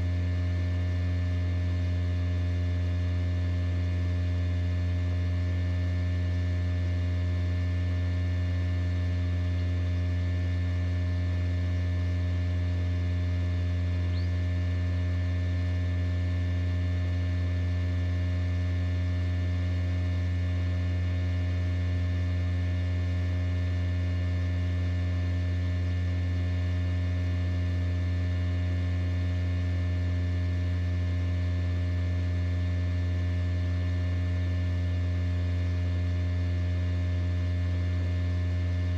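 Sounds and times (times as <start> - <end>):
incubator electrical hum: 0.0 - 38.9
faint high chirp: 14.1 - 14.4.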